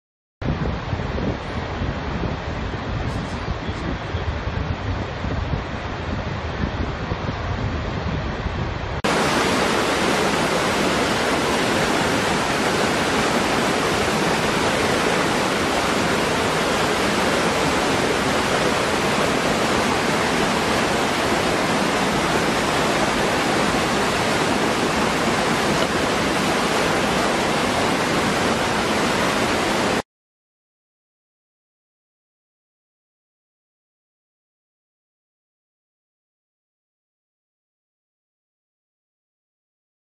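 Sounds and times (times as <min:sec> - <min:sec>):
waterfall rushing: 0:09.0 - 0:30.0.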